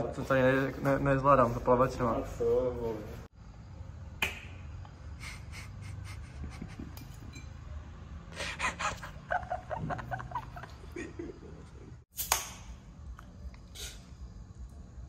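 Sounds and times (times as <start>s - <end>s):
man laughing breathily: 5.2s - 7.2s, 8.3s - 11.8s.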